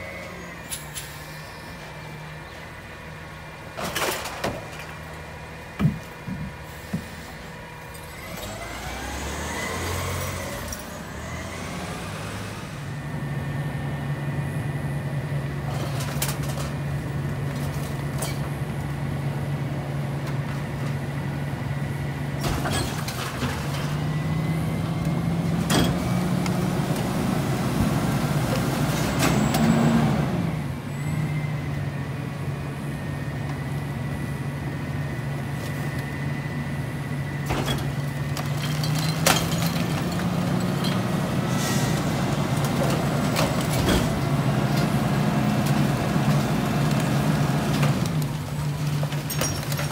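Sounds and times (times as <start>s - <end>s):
garbage truck engine: 0.0s - 49.9s
recyclables clanking: 37.4s - 45.1s, 45.7s - 49.9s.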